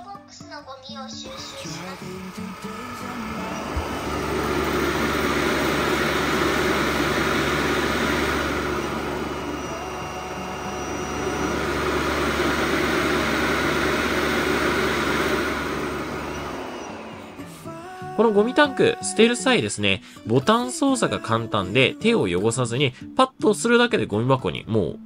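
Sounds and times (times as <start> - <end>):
dust collection station running: 1.2 - 19.6.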